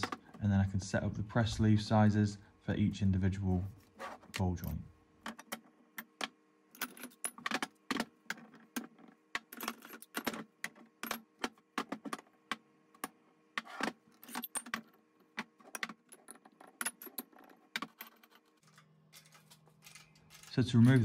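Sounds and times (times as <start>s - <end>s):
metal parts clinking: 4.6s - 12.2s, 13.0s - 21.0s.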